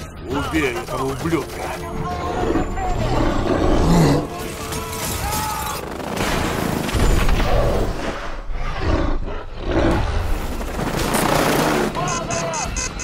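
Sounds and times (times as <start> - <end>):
giant ape roaring: 3.0 - 4.3, 8.6 - 10.2.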